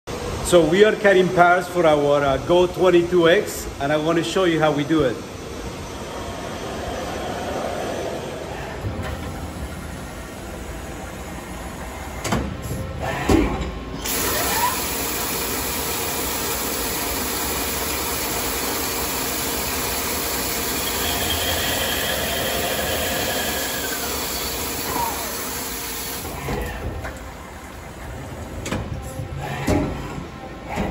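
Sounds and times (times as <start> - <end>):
coolant hiss: 14.0 - 26.4
lathe spindle running: 14.0 - 26.4.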